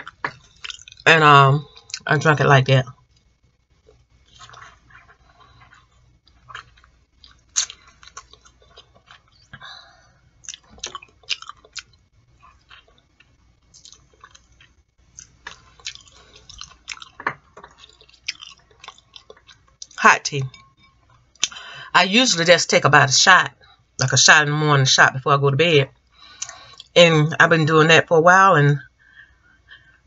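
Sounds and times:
person chewing: 0.0s - 1.0s, 3.0s - 9.6s, 10.4s - 21.7s, 26.2s - 27.0s.

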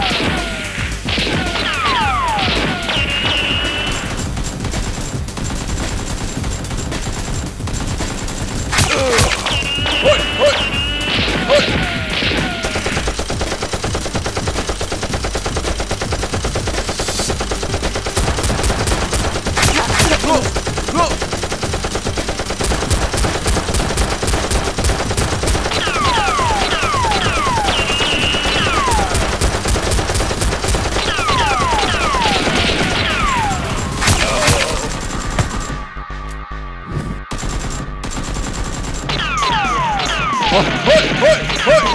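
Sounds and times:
automatic gunfire bursts: 0.0s - 35.8s, 37.3s - 40.6s
background music: 0.0s - 41.9s
falling whistling sounds: 8.8s - 13.0s, 25.8s - 29.2s.

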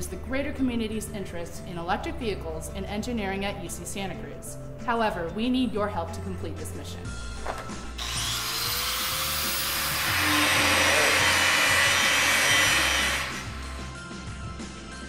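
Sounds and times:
background music: 0.0s - 15.0s
angle grinder grinding metal: 7.9s - 13.8s.

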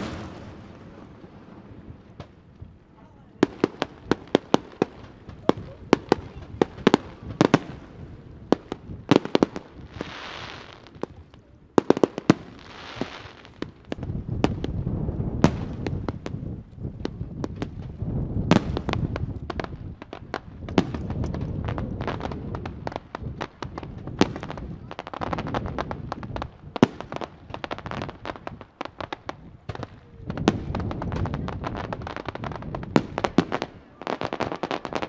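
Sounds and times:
fireworks hissing: 0.0s - 2.0s, 8.8s - 11.0s
fireworks bangs: 0.0s - 35.0s.

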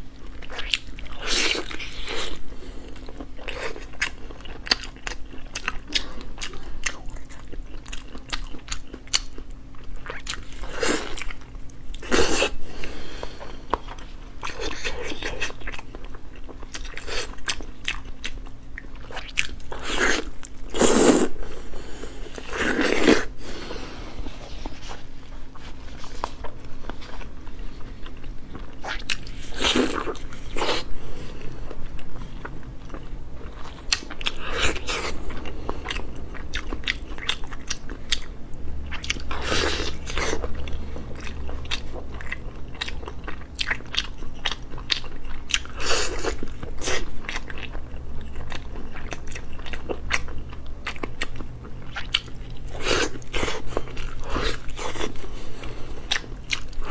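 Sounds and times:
biting and chewing meat: 26.0s - 56.9s.

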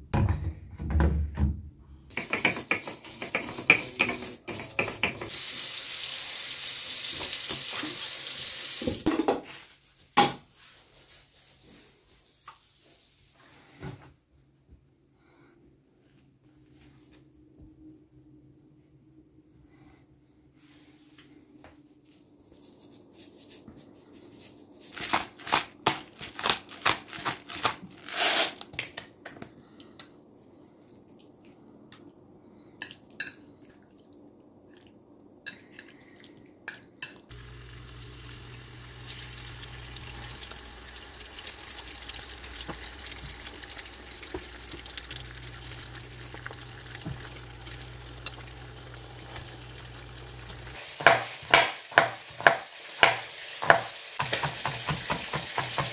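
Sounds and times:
steady hiss with low hum: 37.3s - 50.8s.

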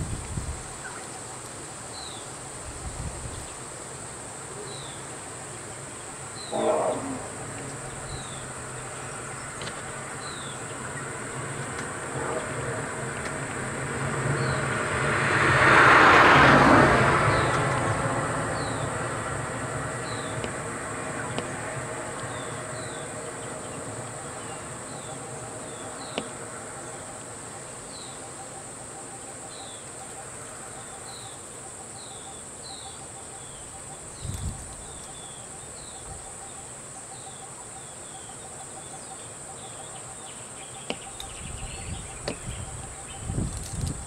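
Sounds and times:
insect chirp: 0.0s - 44.0s
low engine hum: 4.6s - 31.4s
high-pitched insect drone: 6.3s - 13.8s
loud rushing noise: 11.2s - 23.4s.

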